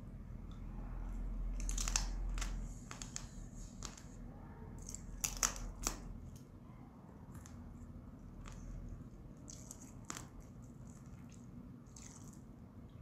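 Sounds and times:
wet smacks and crunches of eating: 8.3s - 12.6s.

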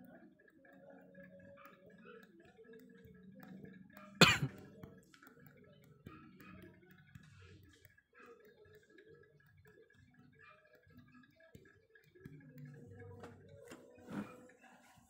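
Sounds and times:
person coughing: 4.2s - 4.5s.

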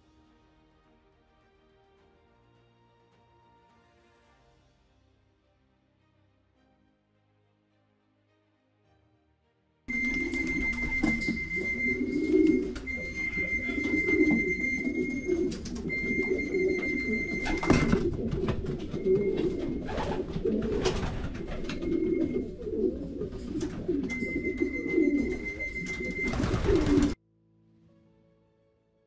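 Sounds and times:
steady high tone: 9.9s - 20.0s, 24.0s - 26.7s
pigeons cooing: 9.9s - 27.2s.

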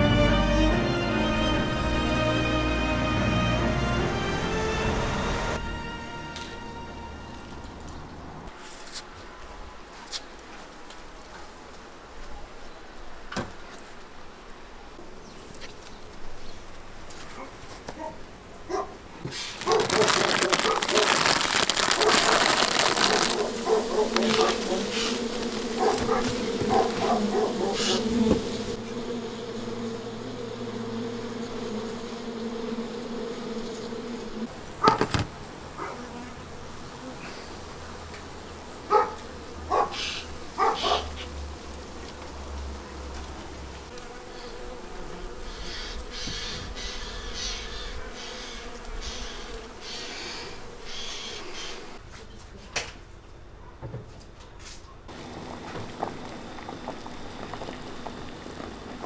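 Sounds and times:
honeybees buzzing: 0.0s - 7.4s, 19.2s - 52.0s, 55.1s - 59.0s
plastic sheet crinkling: 19.3s - 27.4s.

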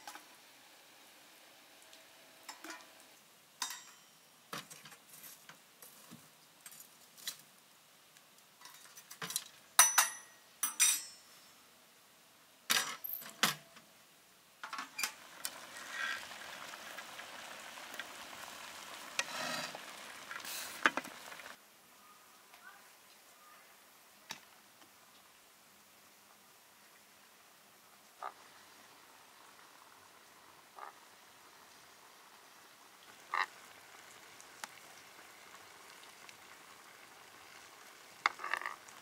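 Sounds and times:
syrup bubbling and sizzling: 0.0s - 9.6s, 14.9s - 21.6s, 24.4s - 39.0s
metal clanks and clinks: 3.6s - 4.2s, 8.6s - 11.4s, 12.7s - 13.7s.

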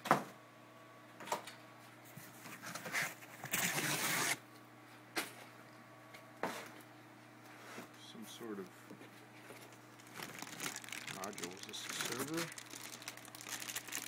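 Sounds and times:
packing scraping rustle: 10.0s - 14.0s.

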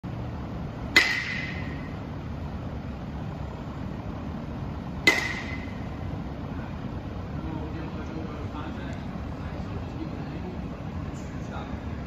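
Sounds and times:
bat pinging on ball: 0.9s - 2.0s, 5.0s - 5.9s.

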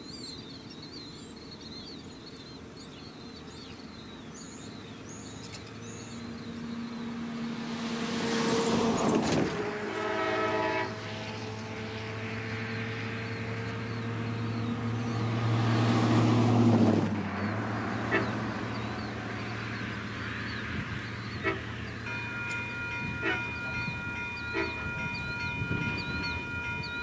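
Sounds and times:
birds chirping: 0.0s - 9.3s, 11.3s - 16.2s, 17.2s - 27.0s
diesel locomotive engine drone: 0.0s - 27.0s
locomotive horn chord: 6.6s - 12.2s, 17.9s - 18.8s, 21.2s - 27.0s.

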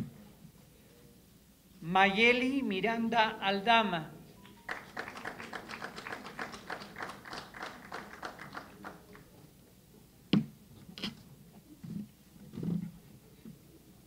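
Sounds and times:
audience applause: 4.4s - 9.4s.

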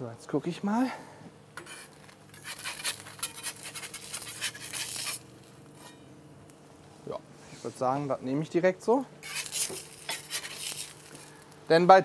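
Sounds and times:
metal spatula scraping steel plate: 1.6s - 6.1s, 9.2s - 11.3s.

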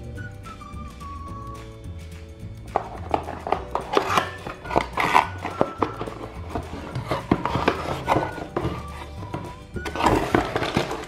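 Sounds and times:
light background music: 0.0s - 11.0s
cardboard box being opened: 4.1s - 11.0s.

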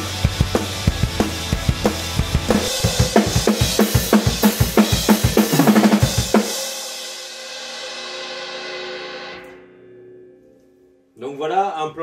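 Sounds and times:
drum kit punk rock beat: 0.0s - 9.4s.

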